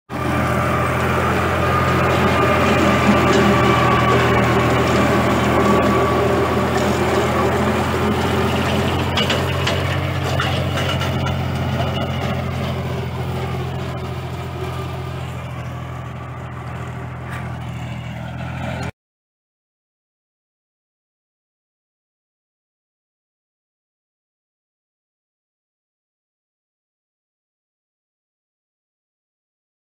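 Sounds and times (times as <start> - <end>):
steady whine: 0.1 - 18.3
implement churning soil: 0.1 - 18.9
tractor engine running under load: 0.1 - 18.9.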